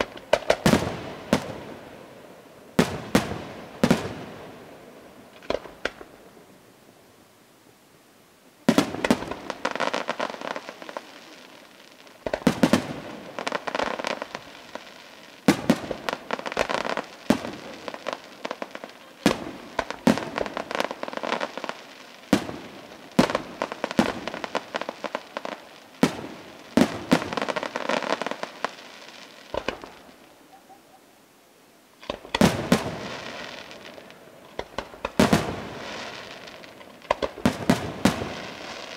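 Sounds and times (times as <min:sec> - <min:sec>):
rapid small firework pops: 0:00.0 - 0:01.6, 0:05.3 - 0:06.2, 0:08.7 - 0:11.3, 0:12.2 - 0:30.1, 0:32.0 - 0:38.9
firework shells bursting: 0:29.5 - 0:30.2, 0:32.0 - 0:38.9.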